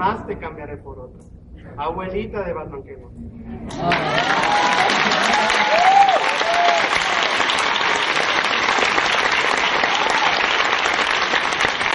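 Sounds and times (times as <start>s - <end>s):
audience applauding: 3.7s - 11.9s
people cheering: 3.7s - 11.9s.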